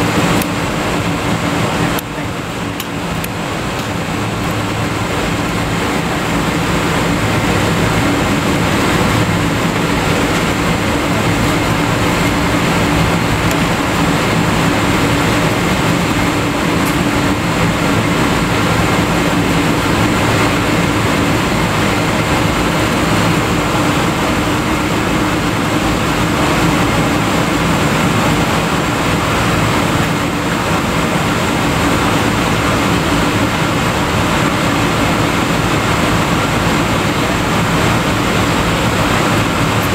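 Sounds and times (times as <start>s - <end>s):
airplane cabin noise taxiing: 0.0s - 39.9s
jet engines at low thrust: 0.0s - 39.9s.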